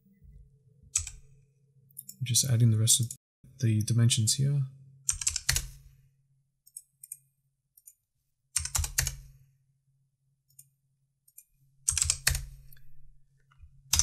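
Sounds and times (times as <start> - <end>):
keyboard typing: 0.9 - 1.4, 5.1 - 5.8, 8.6 - 9.3, 11.3 - 12.9.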